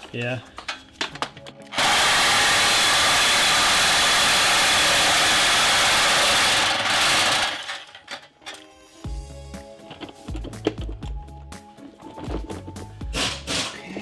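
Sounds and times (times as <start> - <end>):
reciprocating saw cutting metal pipe: 1.7 - 8.0.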